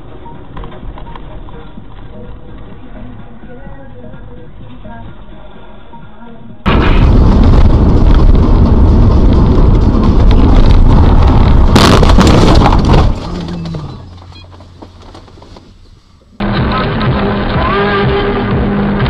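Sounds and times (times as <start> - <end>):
music: 0.0 - 6.7, 16.4 - 19.0
car crash crunching impact: 6.7 - 15.4
car driving rumble: 6.7 - 19.0.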